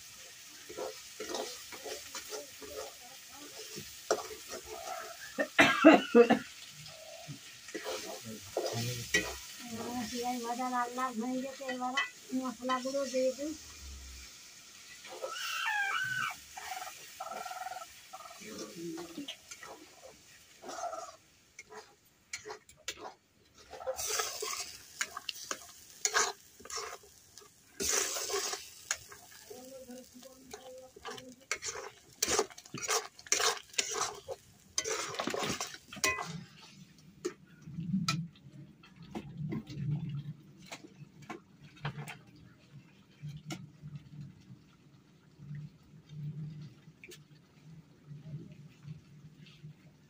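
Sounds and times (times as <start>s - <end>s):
curry sizzling: 0.0s - 50.0s
metal spatula scraping a pan: 0.4s - 5.5s, 6.6s - 13.3s, 14.2s - 37.4s.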